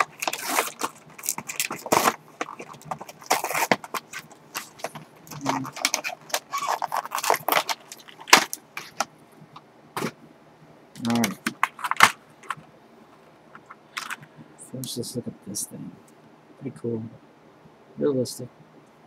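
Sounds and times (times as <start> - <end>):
plastic packaging crackling and tearing: 0.0 - 9.1, 11.0 - 12.6
sharp plastic crack: 0.0 - 9.1, 11.0 - 12.6.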